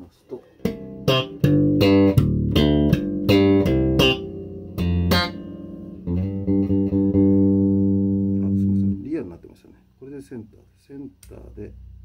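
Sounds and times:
electric bass plucked notes: 0:00.6 - 0:09.1
ringing bass chord: 0:00.8 - 0:09.0.

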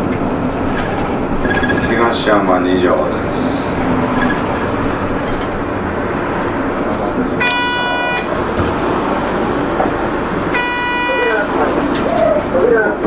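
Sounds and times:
bus engine and road noise: 0:00.0 - 0:13.0
short pitched tones: 0:07.4 - 0:08.3.

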